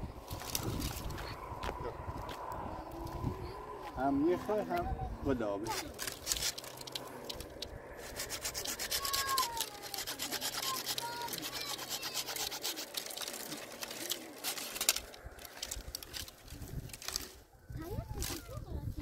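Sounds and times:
rapid scraping strokes: 5.6s - 17.4s.

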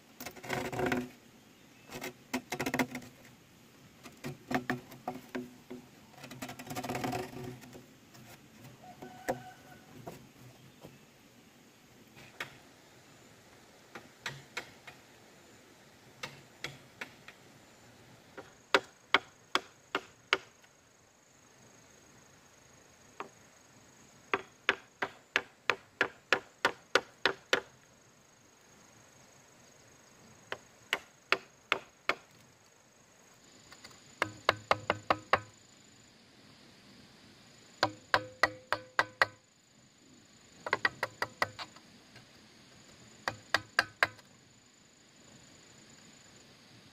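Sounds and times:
bamboo being struck: 37.8s - 39.4s.

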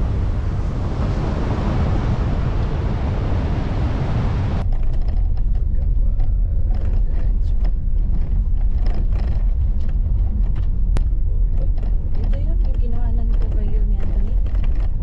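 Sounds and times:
vehicle road rumble from inside: 0.0s - 15.0s
wind and surf on microphone: 0.0s - 15.0s
small clicks and rattles: 4.6s - 15.0s.

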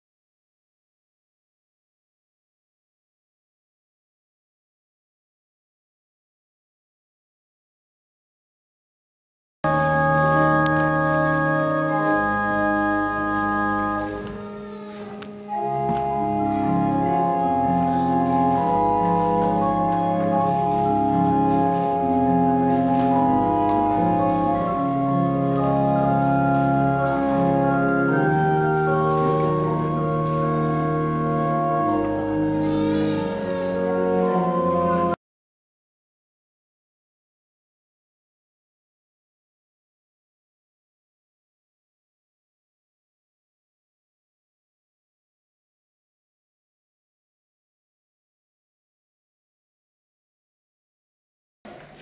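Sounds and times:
church organ chords: 9.7s - 35.2s.

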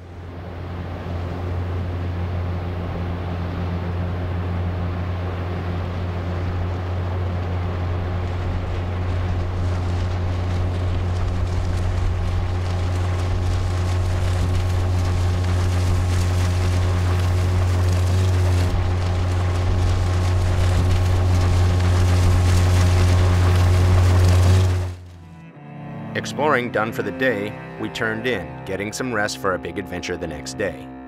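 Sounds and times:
outboard motor humming: 0.0s - 25.4s
rushing noise: 4.6s - 25.2s.

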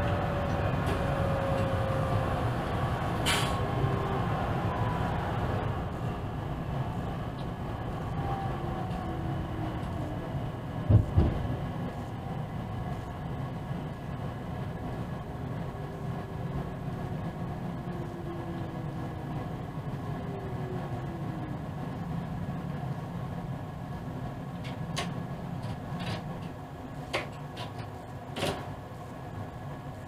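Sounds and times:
train running rumble: 0.0s - 30.0s
sharp clicks and knocks: 24.6s - 28.7s.

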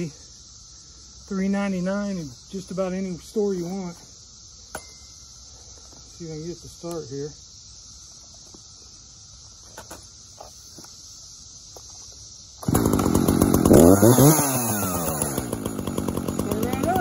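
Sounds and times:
chainsaw pull-starting and revving: 12.6s - 17.0s.

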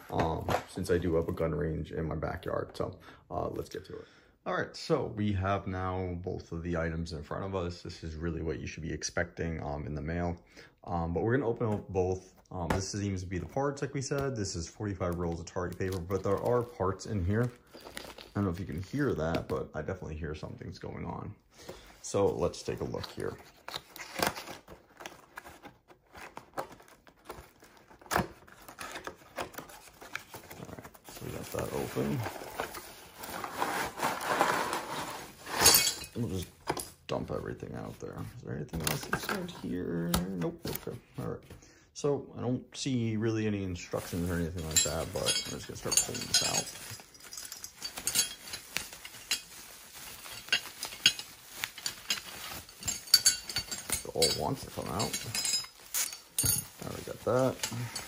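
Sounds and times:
bubble wrap rustling and crackling: 15.0s - 19.5s, 22.0s - 36.4s, 43.8s - 58.0s
metal poles clinking together: 35.5s - 36.9s, 44.6s - 49.5s, 50.3s - 58.0s.

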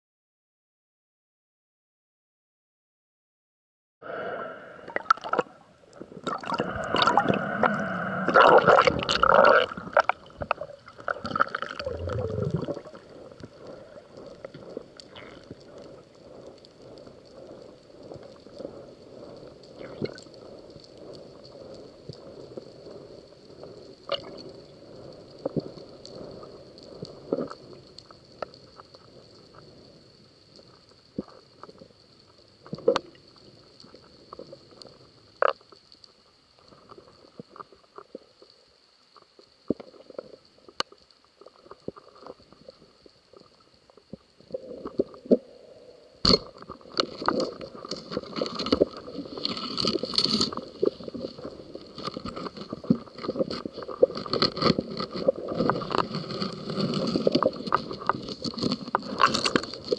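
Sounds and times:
muffled underwater rumble: 4.0s - 59.9s.

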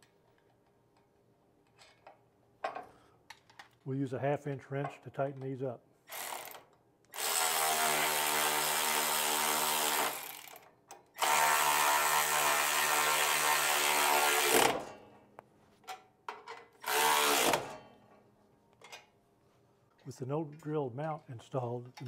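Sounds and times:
electric ratchet whining: 6.1s - 10.6s, 11.2s - 14.9s, 16.8s - 17.7s.

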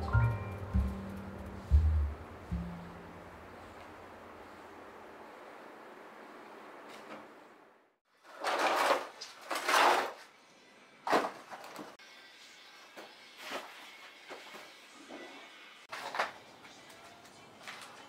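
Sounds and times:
rubble scraping and clattering: 8.3s - 10.2s.

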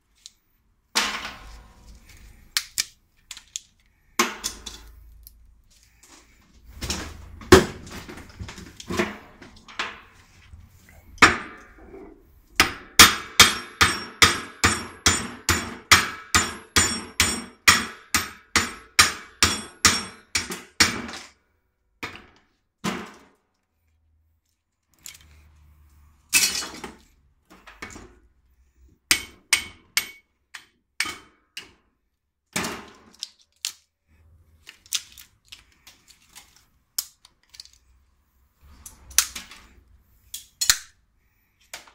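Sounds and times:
hammer striking steel: 12.6s - 21.0s, 29.1s - 30.3s.

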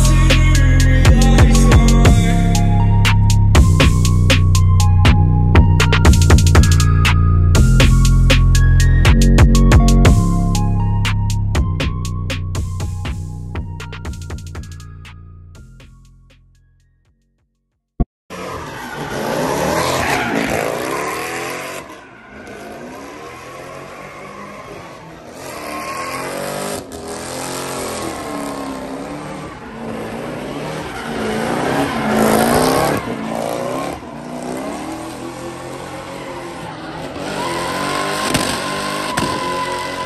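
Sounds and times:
car engine revving: 18.3s - 40.0s.

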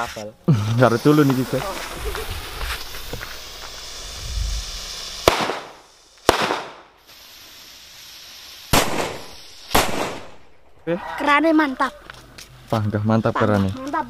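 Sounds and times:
firecrackers banging: 0.5s - 10.8s.

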